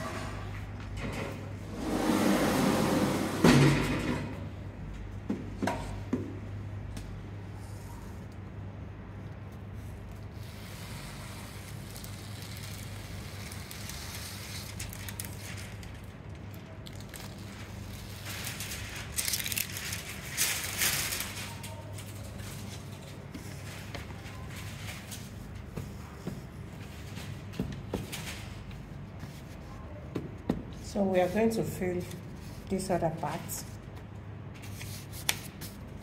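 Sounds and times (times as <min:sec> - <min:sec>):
transfer sheet rustling and crinkling: 0:11.7 - 0:29.8.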